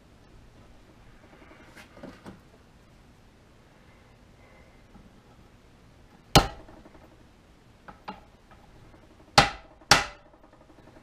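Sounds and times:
hammer striking metal: 6.4s - 6.8s, 9.3s - 10.3s.

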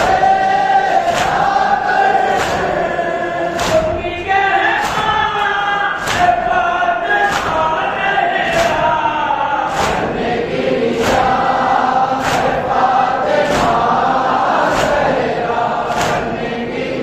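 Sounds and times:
men chanting in unison: 0.0s - 17.0s
hands beating on chests: 2.2s - 2.8s, 3.5s - 4.2s, 4.8s - 6.6s, 7.2s - 9.0s, 9.7s - 10.2s, 12.2s - 12.8s, 15.9s - 16.4s.

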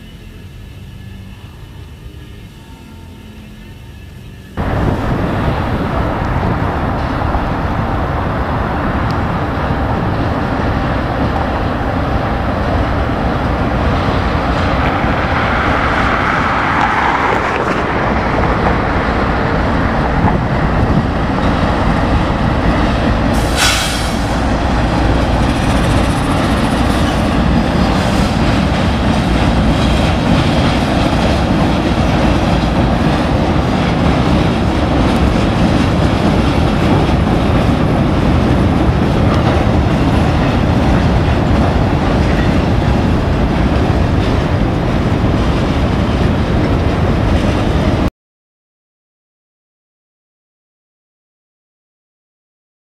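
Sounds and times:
diesel locomotives running: 0.0s - 48.1s
train wheels clacking over rail joints: 22.6s - 46.8s.

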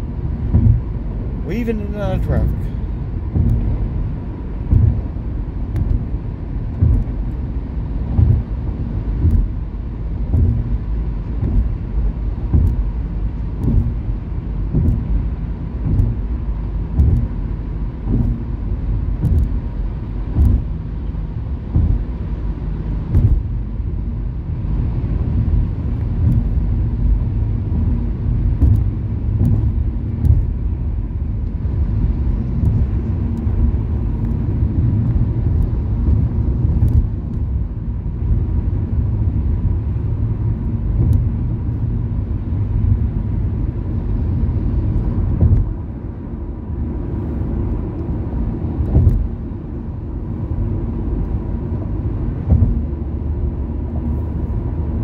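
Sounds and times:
car road and engine rumble: 0.0s - 55.0s
low bumps: 0.0s - 55.0s.

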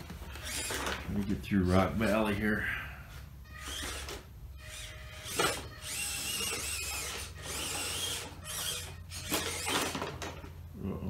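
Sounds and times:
toy car motor whining: 0.3s - 1.0s, 3.4s - 10.6s.

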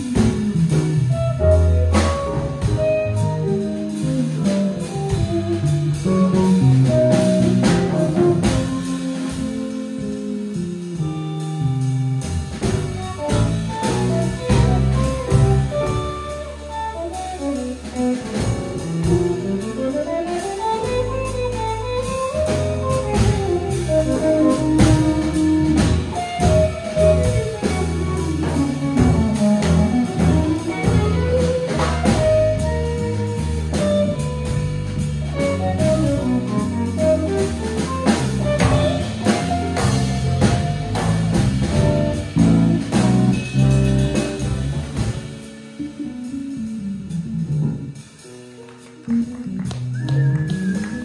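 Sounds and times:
drum kit with cymbals: 0.0s - 51.0s
electric bass: 0.0s - 51.0s.

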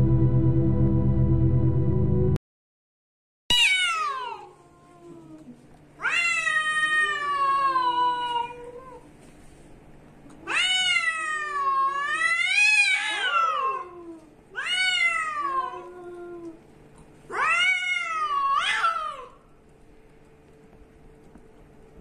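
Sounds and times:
cats yowling: 3.5s - 9.1s, 10.4s - 16.6s, 17.3s - 19.5s.

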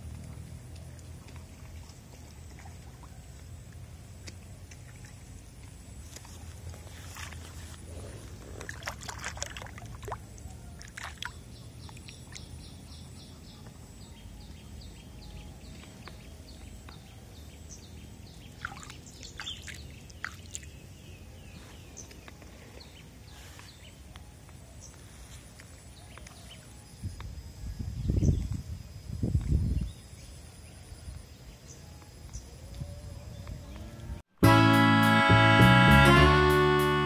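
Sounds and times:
water splashing and sloshing: 0.0s - 12.9s, 18.3s - 21.0s.

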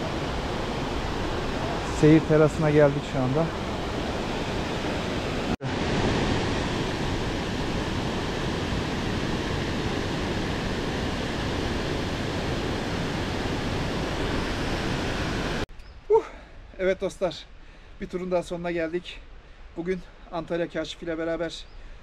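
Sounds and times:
waterfall roaring: 0.0s - 15.6s.

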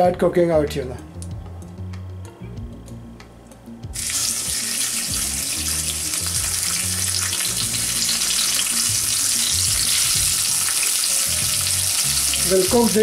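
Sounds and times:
fish sizzling in hot oil: 4.0s - 13.0s.

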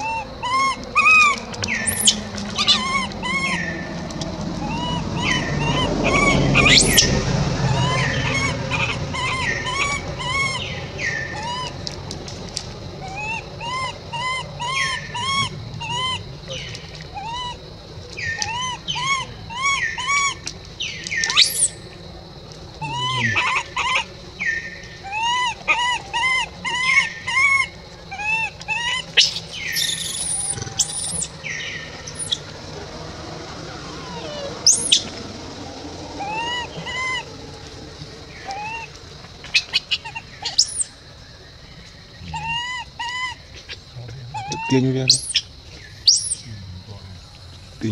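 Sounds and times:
baby monkey whimpering: 0.0s - 3.9s, 4.6s - 12.0s, 13.0s - 17.6s, 18.2s - 20.4s, 22.8s - 24.1s, 25.0s - 33.1s, 33.7s - 35.2s, 36.0s - 37.4s, 38.3s - 40.8s, 42.2s - 45.4s
shrill monkey cries: 0.0s - 12.1s, 12.9s - 22.0s, 22.7s - 41.0s, 42.2s - 46.5s.

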